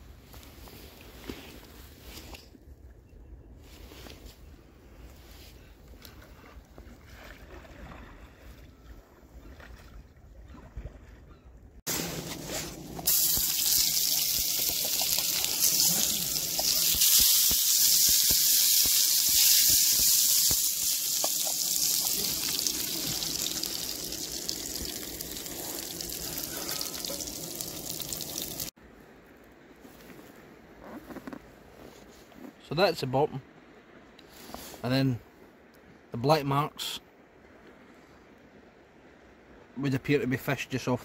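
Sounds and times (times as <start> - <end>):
food frying with loud hiss: 13.1 - 28.7.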